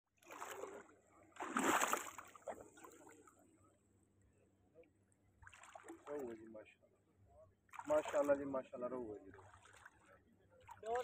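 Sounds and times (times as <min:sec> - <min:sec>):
water splashing: 0:00.2 - 0:03.3, 0:05.4 - 0:06.4, 0:07.7 - 0:11.0.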